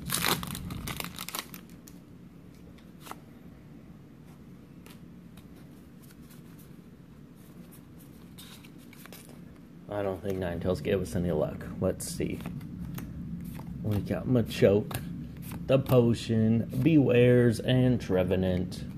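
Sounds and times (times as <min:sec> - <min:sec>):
foil wrapper crinkling: 0:00.0 - 0:02.0
cards being slid and flicked: 0:02.6 - 0:03.3, 0:12.2 - 0:17.1.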